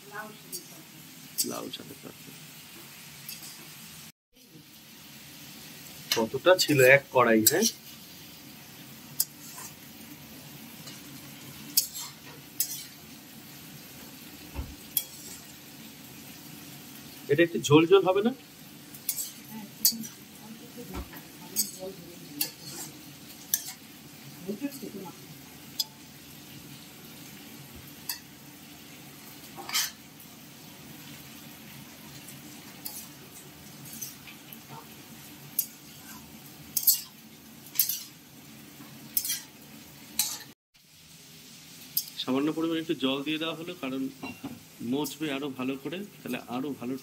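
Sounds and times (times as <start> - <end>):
oil sizzling: 0.0 - 47.0
metal spatula stirring vegetables: 0.4 - 1.7, 2.8 - 3.8, 5.9 - 30.2, 31.0 - 40.6, 41.9 - 42.2
utensil scraping a pan: 9.2 - 9.8, 11.7 - 13.0, 14.9 - 15.5, 19.0 - 20.2, 22.4 - 23.8, 29.6 - 30.0, 32.7 - 34.3
spatula clanking against pan: 21.0 - 21.8.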